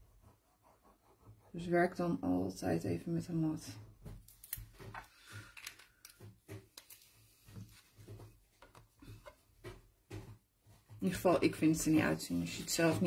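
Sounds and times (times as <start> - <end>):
soft taps and rustles on table: 4.0 - 11.3.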